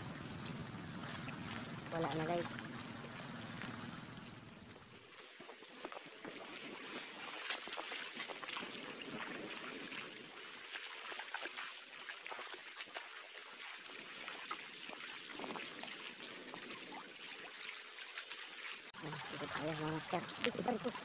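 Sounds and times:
small waves lapping over rocks: 0:00.1 - 0:21.0.

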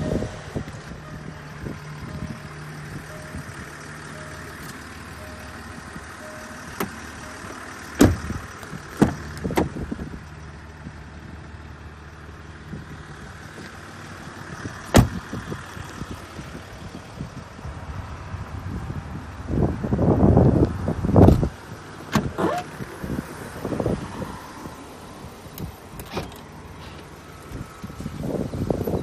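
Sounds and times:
car doors shutting with thuds: 0:06.6 - 0:10.1, 0:14.9 - 0:15.5, 0:21.1 - 0:24.0, 0:25.6 - 0:29.0.

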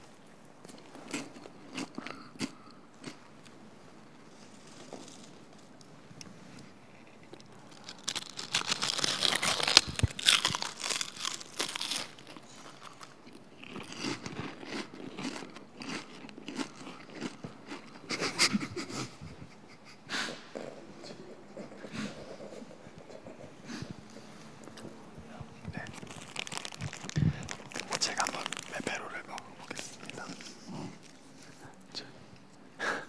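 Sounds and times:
crunchy snacks being chewed: 0:00.6 - 0:03.5, 0:07.2 - 0:18.4, 0:25.7 - 0:31.2.

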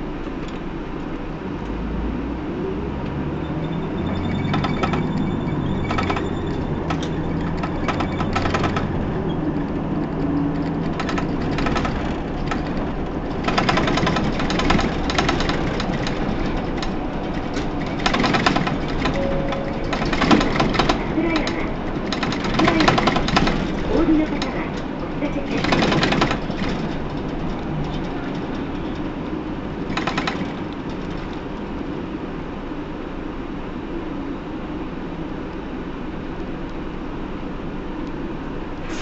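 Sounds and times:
bus diesel engine running: 0:00.0 - 0:39.0
sharp clicks and rattles: 0:03.9 - 0:32.0.

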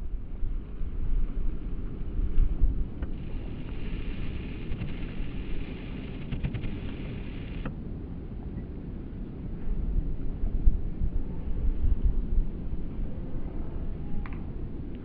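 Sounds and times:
wind buffeting microphone: 0:00.0 - 0:15.0
steady high hiss: 0:03.1 - 0:07.7.

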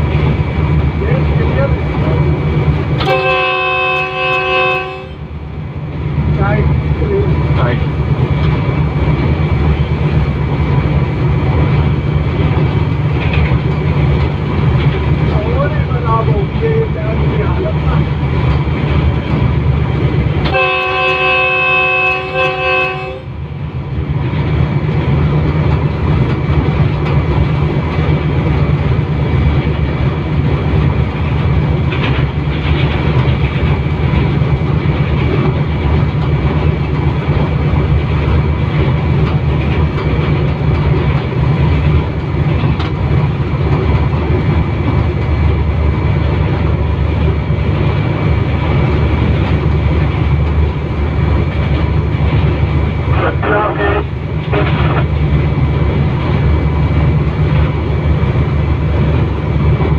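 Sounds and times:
locomotive rumbling along track: 0:00.0 - 0:59.9
locomotive air horn chord: 0:03.0 - 0:05.2, 0:20.5 - 0:23.3.

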